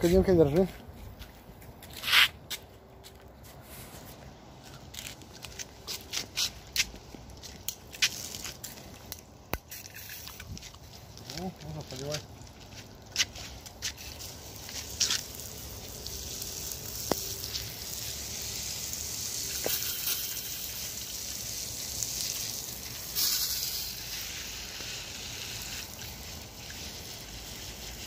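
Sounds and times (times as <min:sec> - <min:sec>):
water spraying from hose nozzle: 0:09.6 - 0:28.0.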